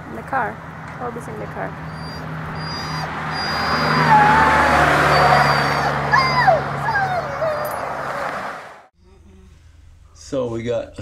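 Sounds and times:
vehicle passing on road: 0.0 - 8.9
dog whining: 1.8 - 8.4.

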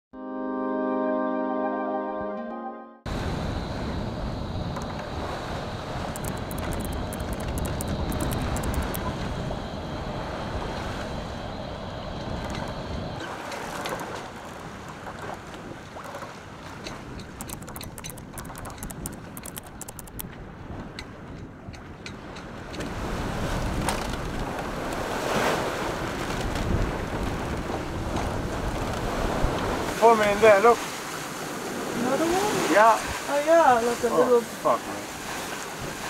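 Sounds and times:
wind on microphone: 3.1 - 13.2, 16.5 - 30.0
sea water washing past boat: 3.1 - 36.0.

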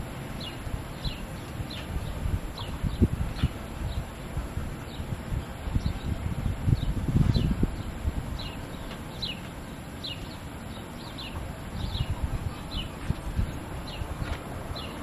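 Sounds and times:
wind rumbling on microphone: 0.0 - 15.0
bird chirping: 6.8 - 13.0.

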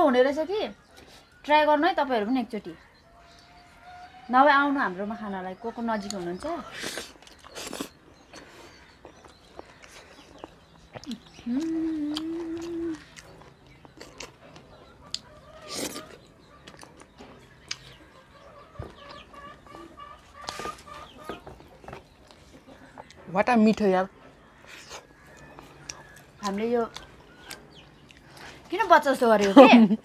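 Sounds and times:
chewing and mouth smacks: 6.0 - 18.1, 24.6 - 28.7.

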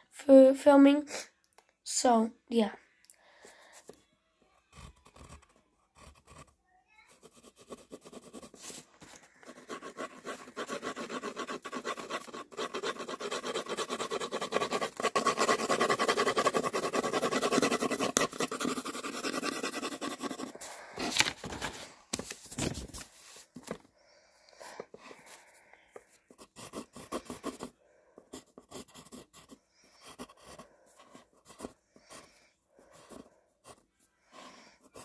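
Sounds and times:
pencil scratching on paper: 4.7 - 20.8, 25.1 - 35.0.

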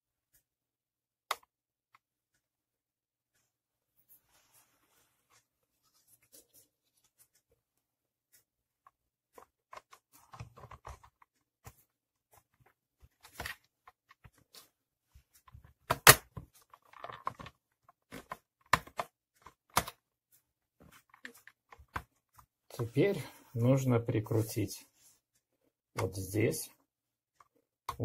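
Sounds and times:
plastic clicks and taps: 15.5 - 20.0.

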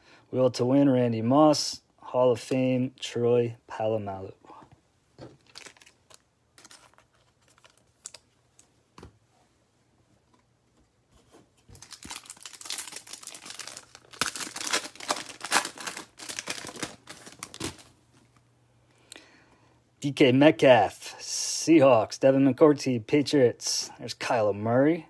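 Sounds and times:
cards being handled: 5.3 - 9.1, 11.2 - 17.9
foil wrapper crinkling and tearing: 5.4 - 8.3, 11.7 - 17.9.

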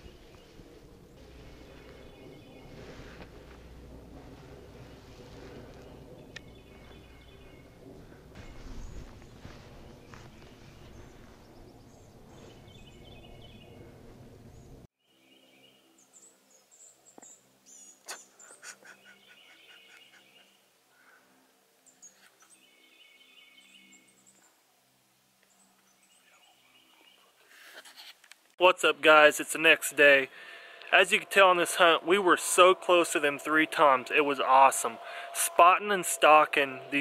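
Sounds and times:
rumbling outdoor noise: 0.0 - 14.9, 28.9 - 37.0
birds trilling and chirping: 0.0 - 20.7, 29.3 - 37.0.

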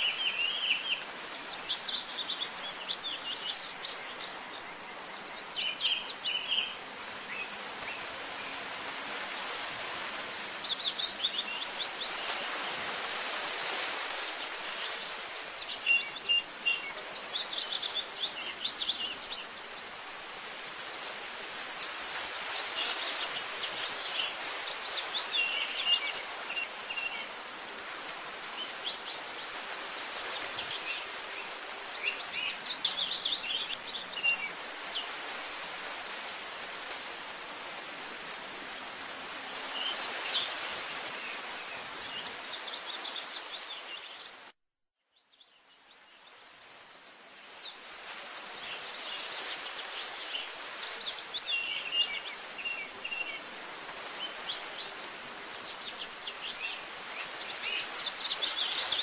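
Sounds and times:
birds chirping and trilling: 0.0 - 8.6.

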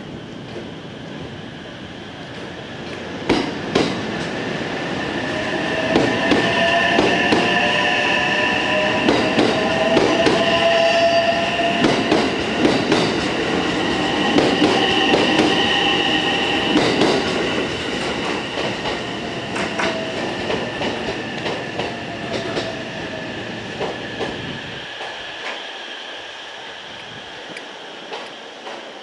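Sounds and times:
train wheels clacking: 2.4 - 4.4, 5.2 - 23.1.

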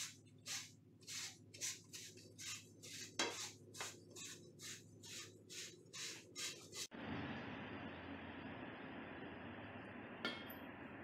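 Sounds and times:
pipe sanding rasping strokes: 0.0 - 6.9.

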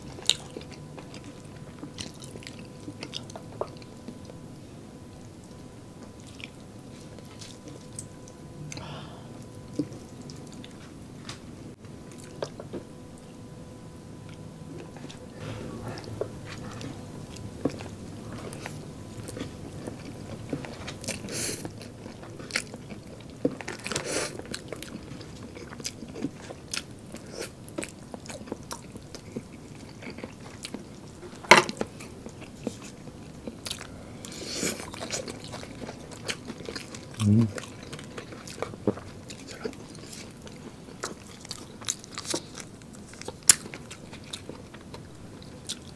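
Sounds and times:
person chewing and biting: 14.7 - 45.9.

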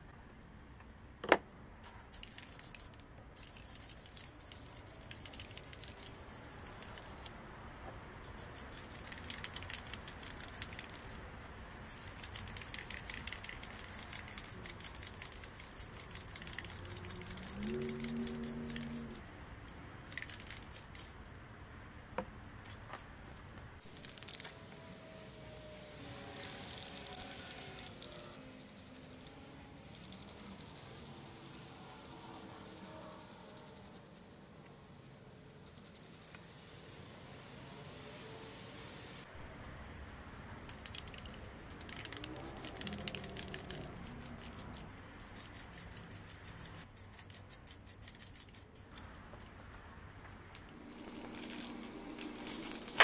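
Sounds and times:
rapid scraping strokes: 1.8 - 7.3, 8.2 - 19.2, 25.4 - 34.3, 40.7 - 49.0.

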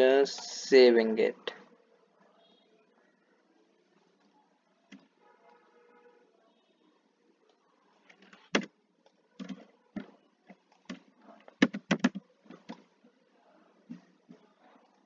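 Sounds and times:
computer keyboard keystrokes: 8.1 - 8.7, 9.4 - 9.7, 10.8 - 12.8.

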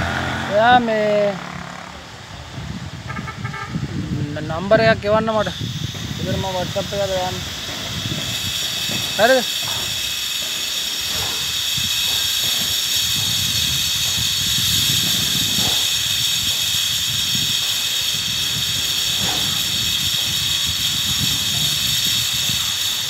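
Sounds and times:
low engine hum: 0.0 - 3.4
road rumble: 0.0 - 23.0
vehicle cab hiss: 5.2 - 23.0.

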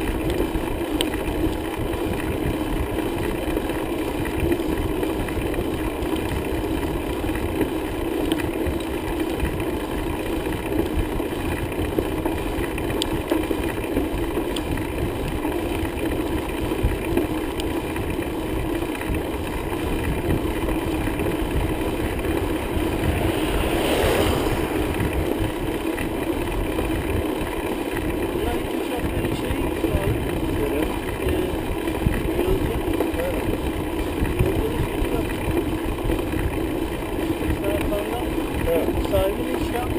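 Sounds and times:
bicycle road noise: 0.0 - 39.9
wind on microphone: 18.0 - 39.9.

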